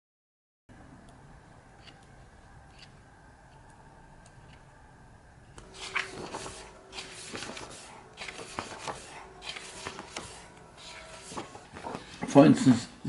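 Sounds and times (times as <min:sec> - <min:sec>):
book pages turning: 0:05.6 - 0:12.4.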